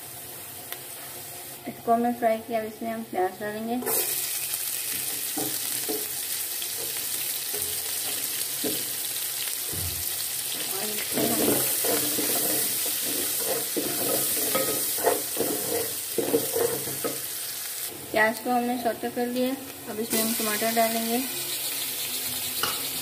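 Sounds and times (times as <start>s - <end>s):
onions sizzling in hot oil: 0.0s - 23.0s
spoon scraping a pot: 10.6s - 17.2s.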